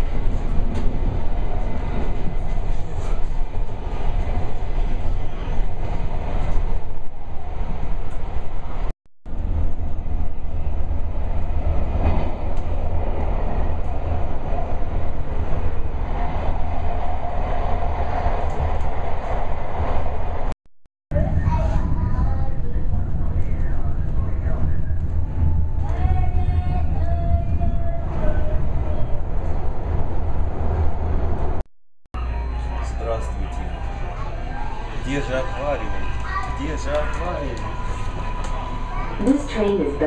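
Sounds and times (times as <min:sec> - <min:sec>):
train wheels rumbling on track: 0:00.0 - 0:20.5, 0:21.2 - 0:31.6.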